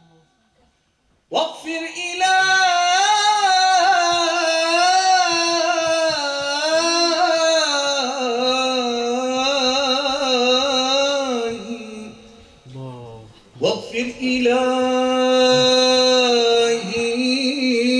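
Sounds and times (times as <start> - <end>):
man singing unaccompanied: 1.3 - 17.9.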